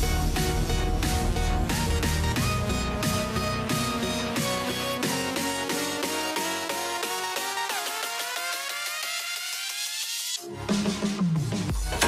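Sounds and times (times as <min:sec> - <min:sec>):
bass line and drums: 0:00.0 - 0:05.8.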